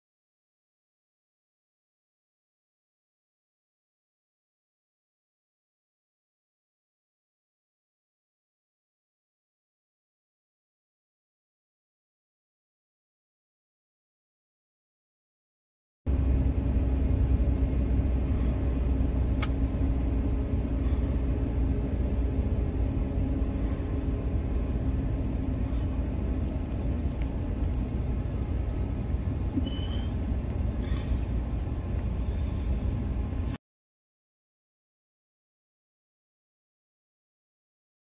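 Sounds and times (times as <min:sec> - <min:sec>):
car rumbling on the move: 0:16.1 - 0:33.6.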